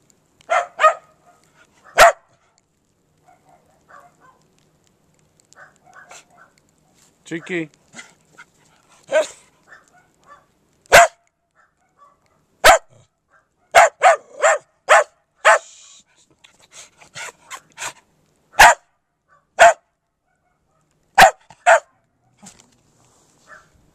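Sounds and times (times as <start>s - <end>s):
small dog barking: 0.5s - 2.4s, 3.2s - 4.5s, 5.5s - 6.6s, 9.0s - 15.7s, 18.5s - 22.6s, 23.5s - 23.8s.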